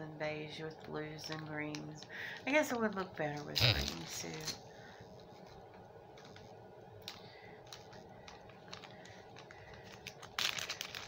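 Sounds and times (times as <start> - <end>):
plastic bag crinkling: 6.1 - 11.0.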